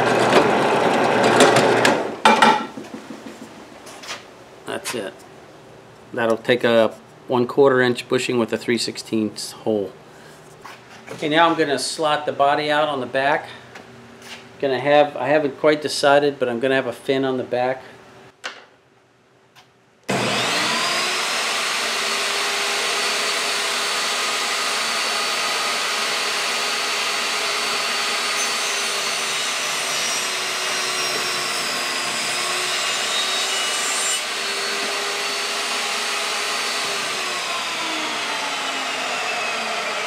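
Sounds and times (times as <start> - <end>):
table saw cutting wood: 0.0 - 2.6, 20.1 - 40.0.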